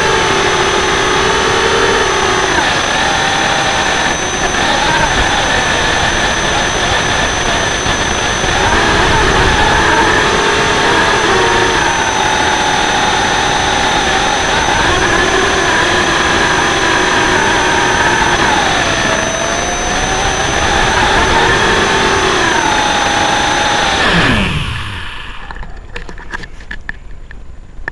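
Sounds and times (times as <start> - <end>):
quadcopter motors buzzing: 0.0 - 26.7.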